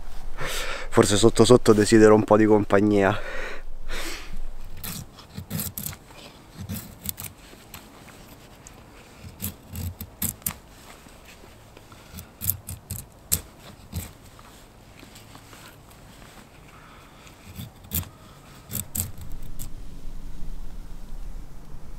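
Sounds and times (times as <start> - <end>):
knife shaving wood: 4.7 - 19.7.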